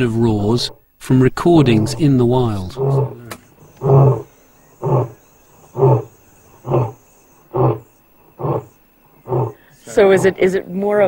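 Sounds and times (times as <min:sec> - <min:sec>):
lion grunting roar over loudspeakers: 0:02.6 - 0:05.2.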